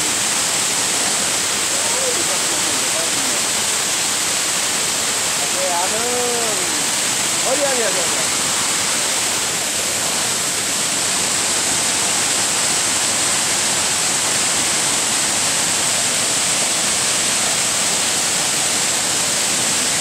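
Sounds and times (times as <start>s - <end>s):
waterfall rushing: 0.0s - 20.0s.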